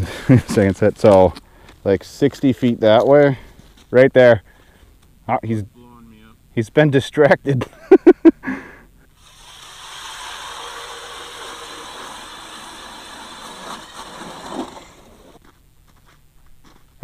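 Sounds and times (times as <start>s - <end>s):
ice auger grinding: 9.2s - 15.4s.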